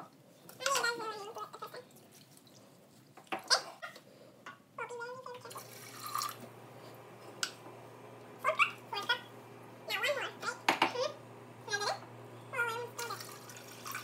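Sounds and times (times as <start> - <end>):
water pouring into pot: 5.4 - 6.5, 13.0 - 14.0
cup and jug knocking: 10.7 - 11.0.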